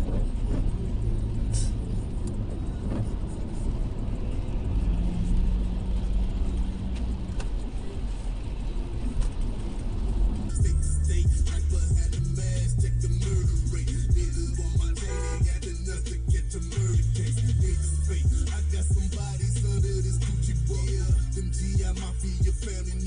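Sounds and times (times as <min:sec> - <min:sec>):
road and engine rumble: 0:00.0 - 0:23.0.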